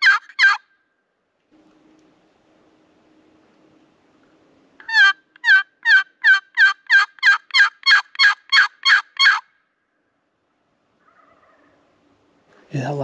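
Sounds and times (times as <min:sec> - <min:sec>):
turkey box call hen yelps: 0:00.0 - 0:00.7, 0:04.8 - 0:09.5, 0:11.0 - 0:11.8.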